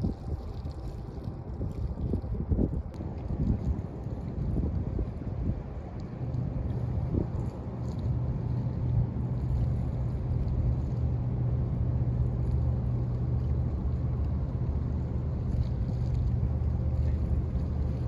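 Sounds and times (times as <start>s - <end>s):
ship engine drone: 5.6s - 18.0s.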